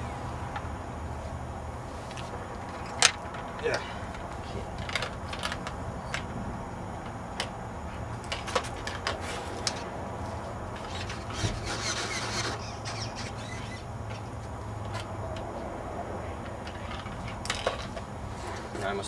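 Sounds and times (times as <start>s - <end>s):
steady low hum: 0.0s - 19.0s
scraping rustle: 8.4s - 14.3s.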